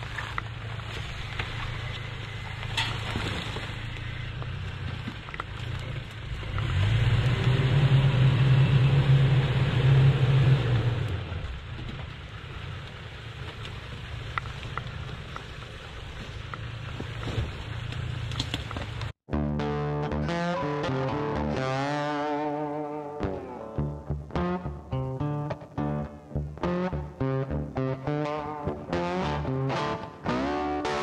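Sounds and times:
pickup truck engine running: 0.0 - 19.2.

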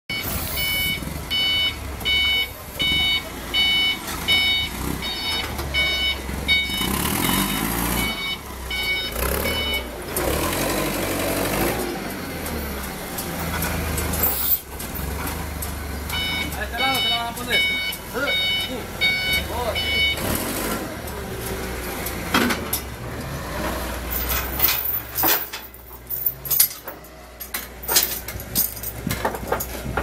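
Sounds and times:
forklift reversing alarm beeping: 0.1 - 12.7, 14.1 - 15.1, 15.9 - 21.6
forklift engine running: 0.1 - 30.0.

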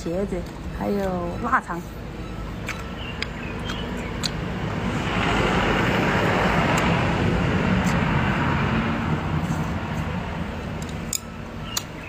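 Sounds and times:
chewing clicks: 2.6 - 4.4
vehicle passing: 2.9 - 11.7.

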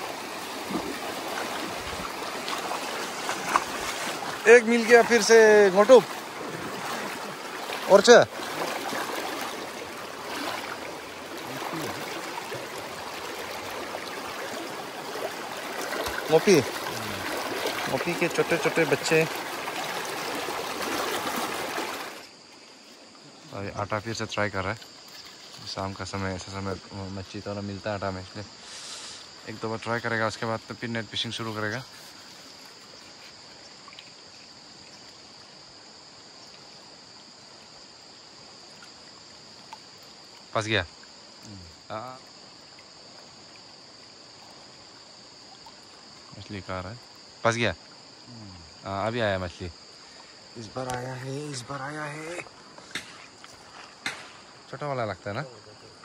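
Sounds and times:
mountain stream rushing: 0.0 - 22.5, 49.7 - 54.8
mountain stream flowing: 0.0 - 56.0
high-pitched insect drone: 39.8 - 56.0.

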